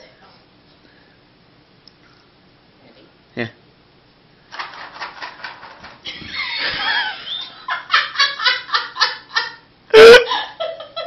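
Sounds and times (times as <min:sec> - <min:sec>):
person laughing hard: 0:06.1 - 0:11.0.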